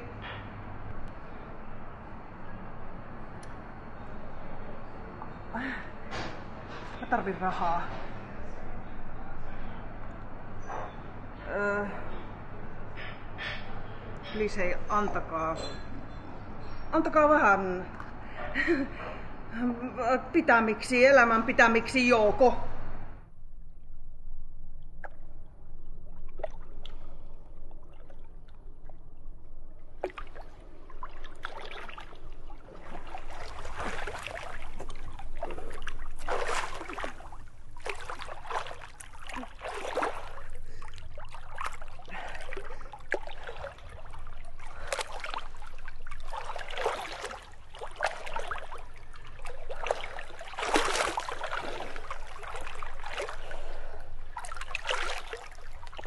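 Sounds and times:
water dripping and lapping: 5.2s - 19.0s, 24.8s - 56.0s
water splashing: 26.1s - 56.0s.

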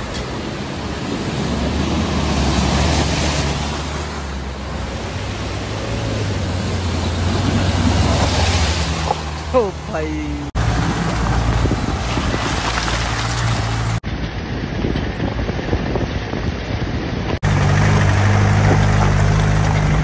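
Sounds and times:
water splashing: 0.0s - 14.6s
vehicle engine: 0.0s - 20.0s.

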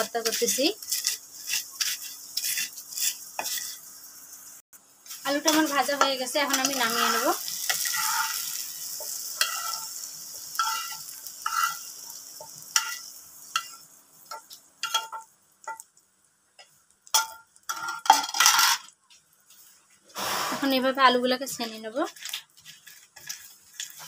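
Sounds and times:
potatoes scraped from metal pan: 0.0s - 3.9s, 5.1s - 10.0s, 21.5s - 24.0s
oil sizzling: 0.0s - 24.0s.

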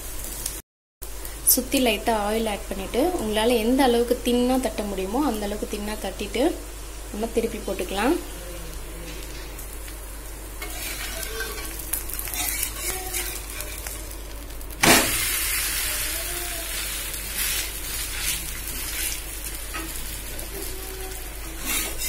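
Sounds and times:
food sizzling in oil: 0.0s - 22.0s
metal spatula scraping a pan: 10.6s - 14.1s, 17.4s - 20.0s, 21.4s - 22.0s.

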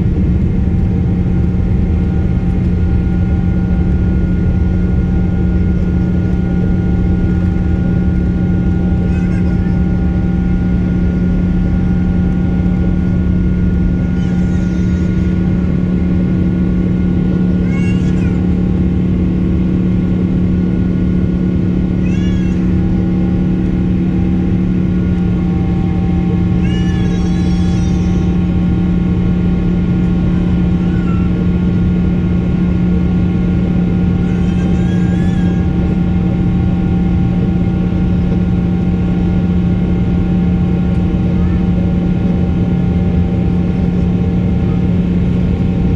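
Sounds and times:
jet airliner cabin drone: 0.0s - 45.9s
high-pitched wavering cries: 26.4s - 28.6s, 34.1s - 36.0s.

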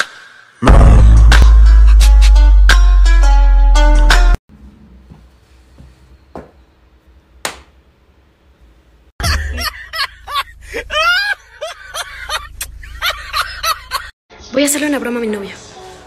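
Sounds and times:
soft knocks: 5.1s - 6.6s
woman laughing loudly: 9.2s - 14.1s.

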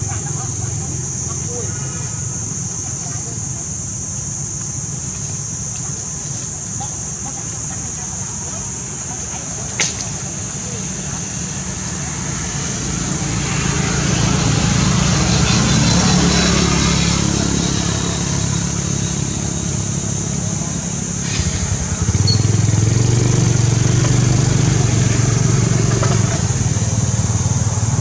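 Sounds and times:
vehicle engine droning: 0.0s - 28.0s.

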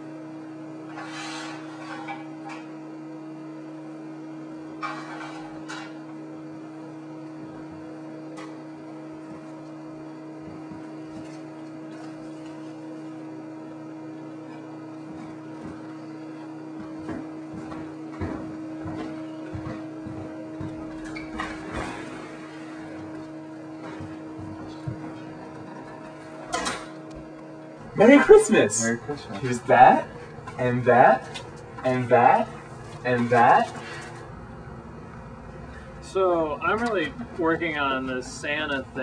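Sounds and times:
electrical hum: 0.0s - 39.0s
pan and utensils clattering: 4.8s - 6.0s.

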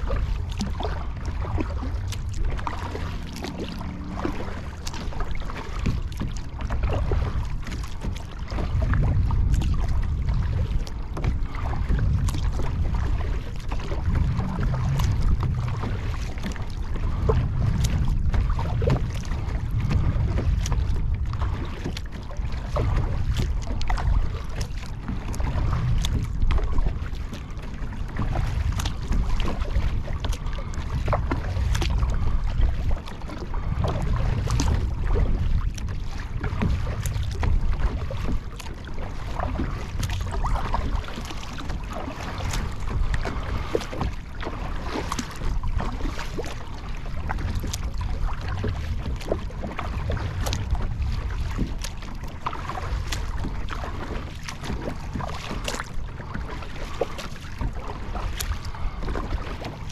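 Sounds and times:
kayak knocks: 0.0s - 59.9s
water splashing and lapping: 0.0s - 59.9s
wind buffeting microphone: 0.0s - 59.9s.

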